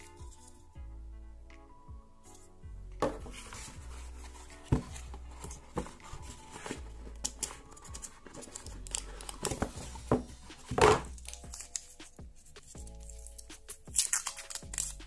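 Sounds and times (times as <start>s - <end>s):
packaging crinkling and tearing: 6.7s - 9.7s, 11.0s - 12.0s, 12.9s - 15.0s.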